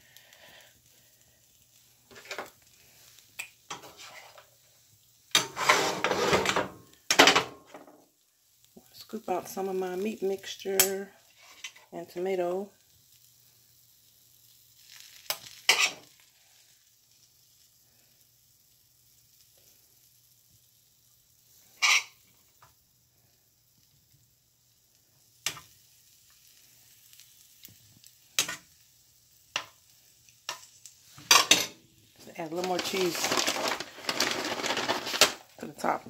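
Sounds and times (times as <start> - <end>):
spoon scraping in a frying pan: 3.4 - 4.5, 5.3 - 6.6, 10.8 - 11.9, 15.2 - 16.1, 21.6 - 22.4.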